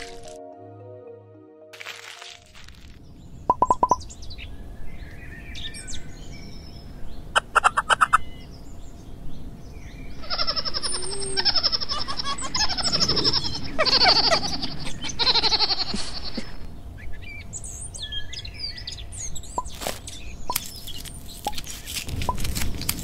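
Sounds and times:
high chirping animal calls: 7.4s - 8.5s, 9.9s - 18.1s.

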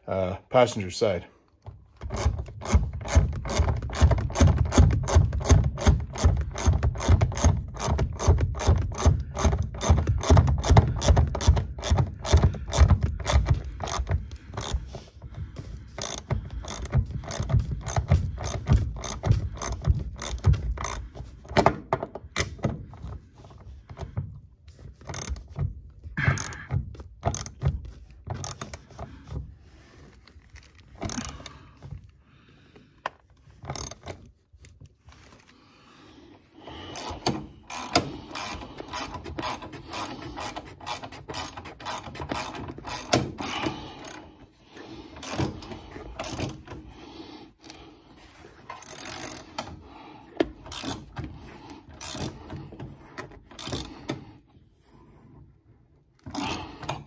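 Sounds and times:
ratchet wrench clicking: 2.0s - 14.8s, 16.0s - 21.0s, 25.0s - 25.5s, 26.3s - 27.7s, 28.4s - 28.8s, 33.7s - 34.2s, 36.9s - 44.2s, 48.7s - 49.7s, 50.7s - 51.2s, 52.0s - 52.5s, 53.6s - 54.0s.

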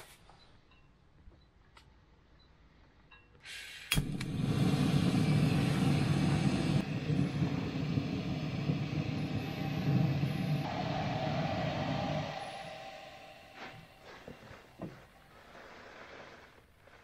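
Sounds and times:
gas stove burner roaring: 3.5s - 16.2s
steady higher tone: 5.4s - 15.2s.

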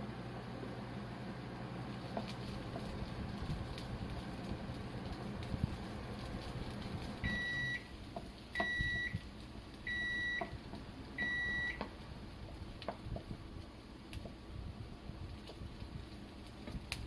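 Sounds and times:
high-pitched appliance beeps: 7.2s - 7.9s, 8.6s - 9.2s, 9.9s - 10.6s, 11.2s - 11.8s.

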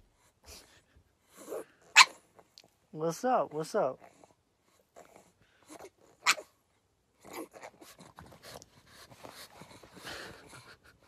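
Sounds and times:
dog paws scratching blanket: 0.0s - 11.0s.

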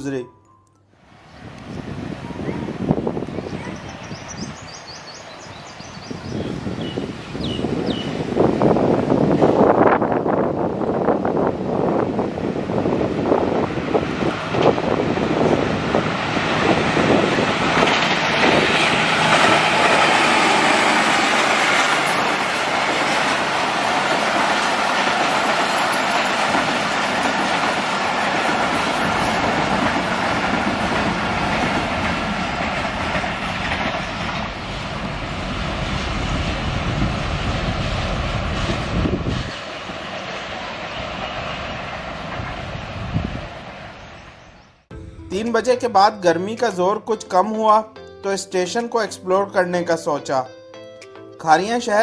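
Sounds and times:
diesel locomotive passing: 1.0s - 47.9s
train coaches rushing by: 1.3s - 44.8s
wheels clattering over rails: 13.8s - 36.4s.

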